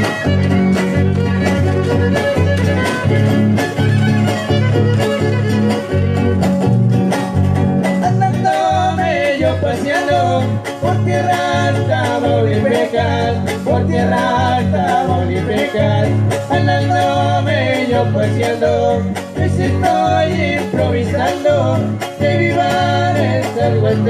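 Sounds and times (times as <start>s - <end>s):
violin melody: 0.0s - 7.5s
repeating bass: 0.0s - 24.0s
strummed guitars: 0.0s - 24.0s.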